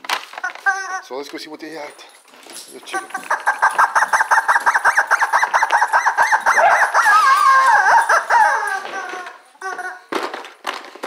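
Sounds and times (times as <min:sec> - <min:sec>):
rubber chicken toy squeaking: 0:03.0 - 0:10.0.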